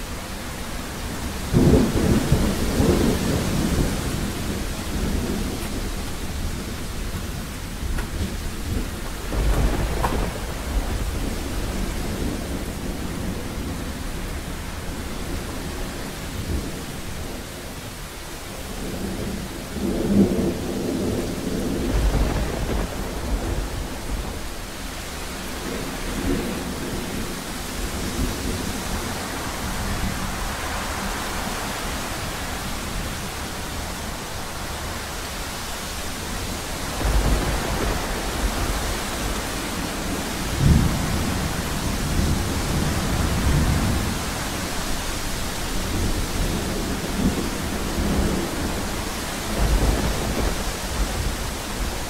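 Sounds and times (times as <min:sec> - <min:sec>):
heavy rain: 0:00.0 - 0:52.0
thunder rumbling: 0:00.3 - 0:17.4, 0:18.6 - 0:52.0.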